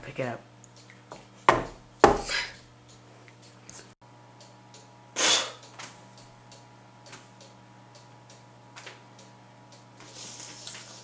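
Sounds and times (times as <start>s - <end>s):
sharp burst of breath: 5.2s - 5.6s.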